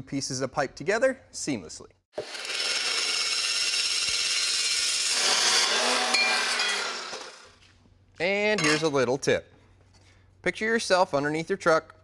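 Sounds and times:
chop saw grinding steel tube: 0:02.2 - 0:07.6.

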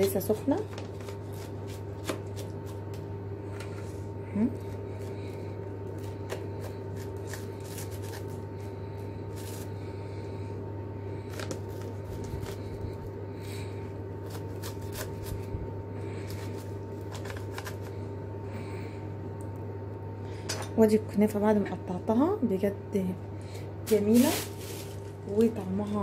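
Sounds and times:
steady low hum: 0:00.0 - 0:26.0
knife crunching through crisp pastry: 0:00.9 - 0:02.9, 0:04.9 - 0:08.7, 0:14.2 - 0:15.5, 0:16.1 - 0:18.0.

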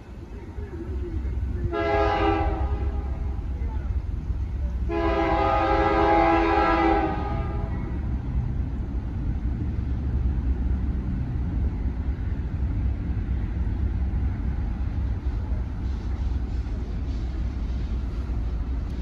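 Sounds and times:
moving train rumble: 0:00.0 - 0:19.0
locomotive air horn chord: 0:01.7 - 0:03.4, 0:04.9 - 0:07.9.

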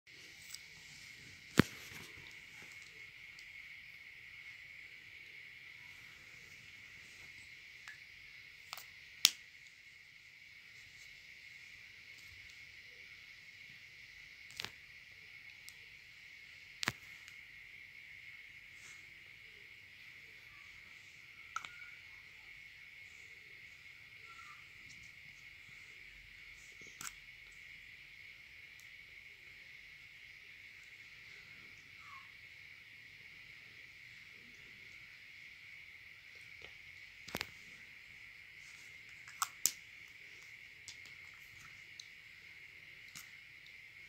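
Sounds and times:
faint high-pitched drone: 0:00.1 - 0:44.0.

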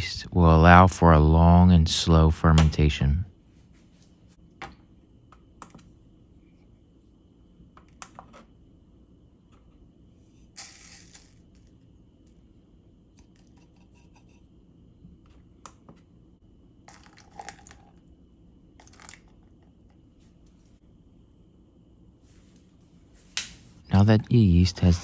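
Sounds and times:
water pouring: 0:16.9 - 0:18.0, 0:18.8 - 0:19.4.

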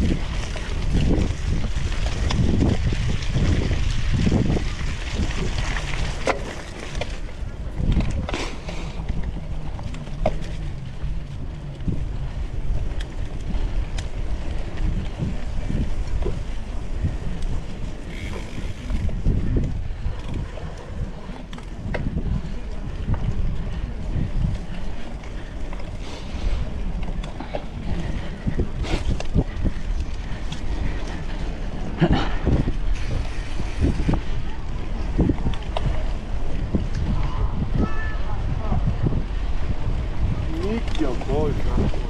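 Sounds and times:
bike knocks and rattles: 0:00.0 - 0:12.0, 0:21.4 - 0:22.4
bike clicks and rattles: 0:00.0 - 0:42.0
bike tyres rumbling over dirt: 0:00.0 - 0:42.0
wind buffeting microphone: 0:00.0 - 0:42.0.

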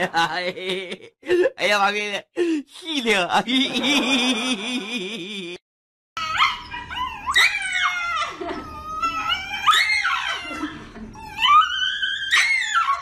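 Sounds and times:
dog screaming: 0:09.0 - 0:10.6, 0:11.4 - 0:13.0.

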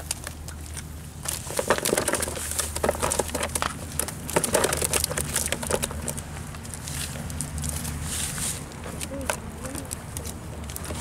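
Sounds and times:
fish flapping in plastic tub: 0:01.2 - 0:07.9.

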